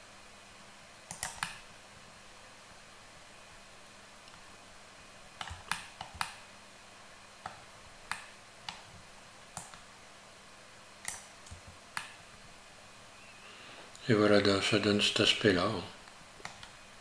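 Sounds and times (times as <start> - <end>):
faint steady hum: 0.0 - 17.0
keyboard and mouse clicking: 1.1 - 1.7, 5.4 - 6.4, 7.4 - 9.9, 11.0 - 12.2, 16.4 - 16.8.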